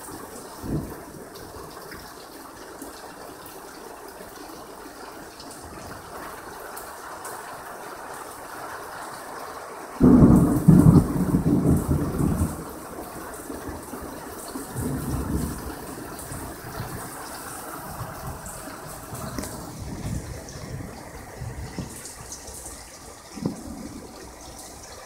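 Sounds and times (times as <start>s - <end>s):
heavy rain: 0.0s - 25.0s
thunder clap and rumble: 0.6s - 1.3s, 10.0s - 25.0s.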